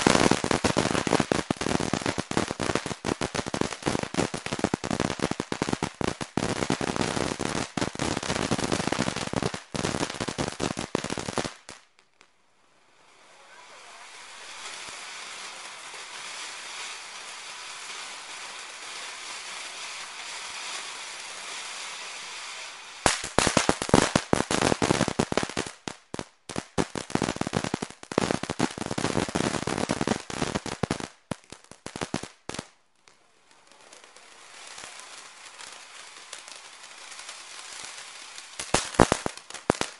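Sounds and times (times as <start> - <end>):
fountain firework hissing: 0.0 - 11.8, 12.6 - 25.8, 33.2 - 39.9
fireworks crackling: 0.0 - 39.9.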